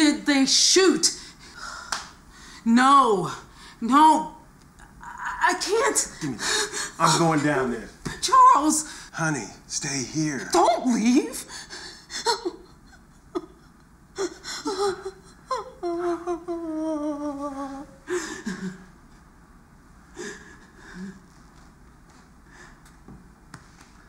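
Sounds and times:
woman sobbing and wailing: 4.8 - 7.2, 10.6 - 18.9.

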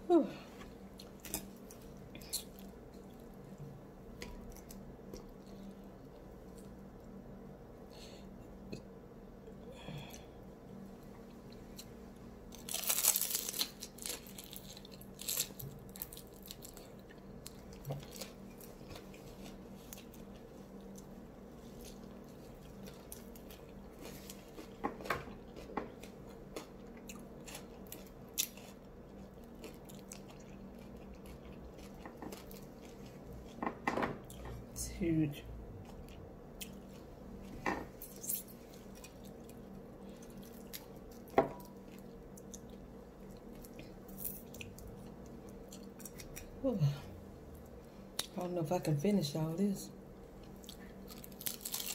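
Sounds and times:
person chewing: 11.3 - 33.6, 35.8 - 46.6
crisp wrapper crackling: 12.5 - 18.4, 51.1 - 51.9.

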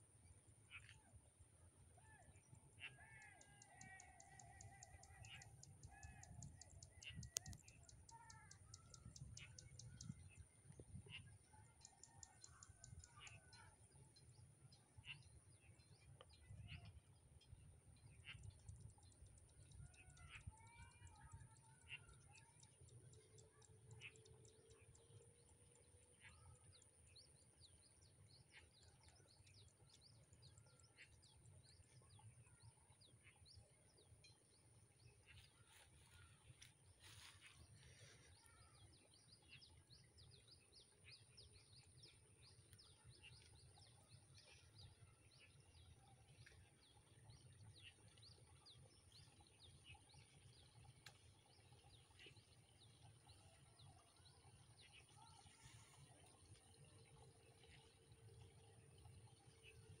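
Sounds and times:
small birds chirping: 18.2 - 60.0.

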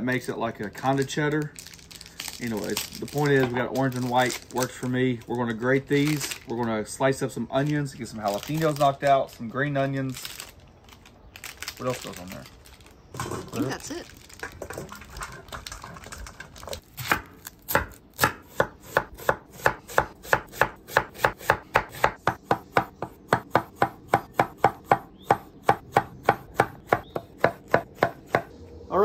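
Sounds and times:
knife chopping on wooden board: 17.0 - 28.5.

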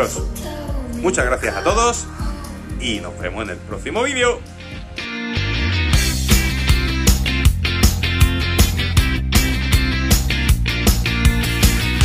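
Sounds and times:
background music with held chords: 0.0 - 12.0
steady beat: 5.9 - 12.0.

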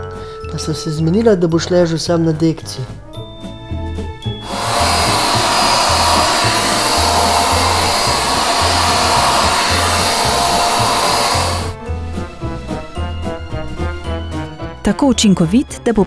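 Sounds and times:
handheld vacuum cleaner running: 4.4 - 11.8.

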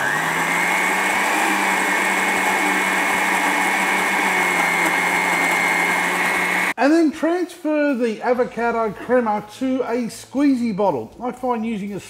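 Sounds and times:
blender whining: 0.0 - 6.8.

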